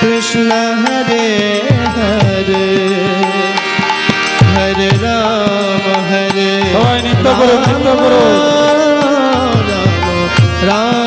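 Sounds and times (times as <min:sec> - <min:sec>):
tabla drumming: 0:00.0 - 0:11.0
melody bending in pitch: 0:07.4 - 0:08.8.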